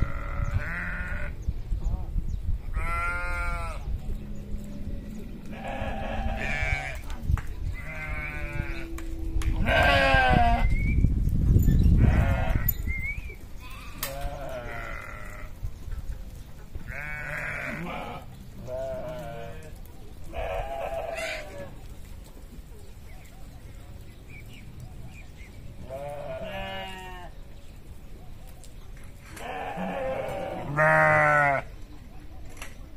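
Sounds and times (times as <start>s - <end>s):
sheep bleating: 0.0s - 1.4s, 2.7s - 3.8s, 5.5s - 7.0s, 7.8s - 9.0s, 9.6s - 10.7s, 13.6s - 15.5s, 16.9s - 19.7s, 20.3s - 21.7s, 25.9s - 27.4s, 29.4s - 31.7s.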